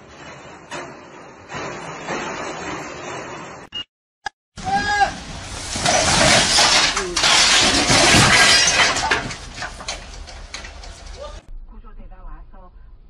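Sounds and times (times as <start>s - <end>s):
person shouting: 4.6s - 5.2s
slabs and boards crashing down: 4.7s - 11.2s.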